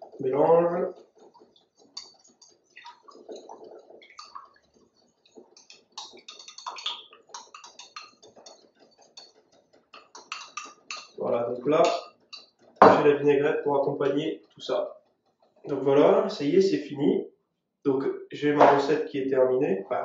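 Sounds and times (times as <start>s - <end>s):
utensil stirring in a bowl: 0.0s - 13.3s
light clicks and scrapes on bowl: 0.9s - 12.8s.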